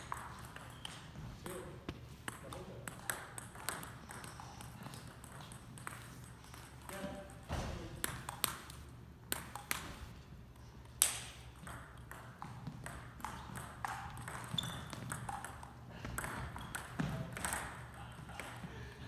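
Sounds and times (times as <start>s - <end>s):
table tennis ball clicking: 8.0s - 9.8s, 11.0s - 17.8s.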